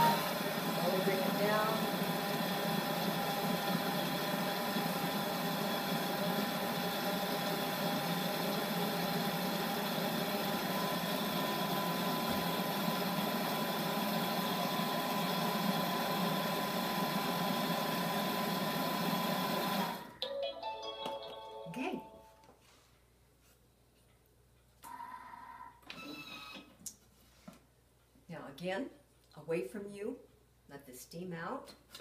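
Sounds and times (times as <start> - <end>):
blender motor whining: 0.0 - 20.1.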